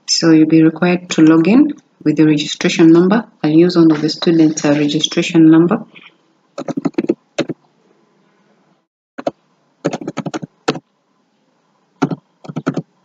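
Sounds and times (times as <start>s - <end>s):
keyboard keystrokes: 9.9s - 10.8s, 12.0s - 12.8s.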